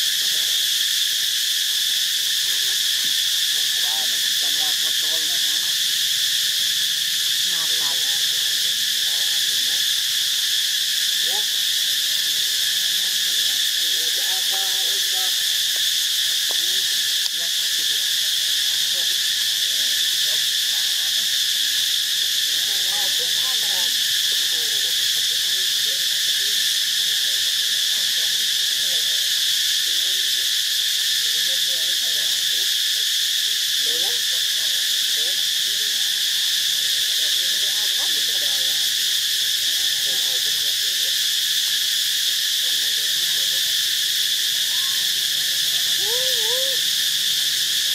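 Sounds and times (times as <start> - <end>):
insect chorus drone: 0.0 - 47.9
faint voice-like calls: 42.7 - 47.4.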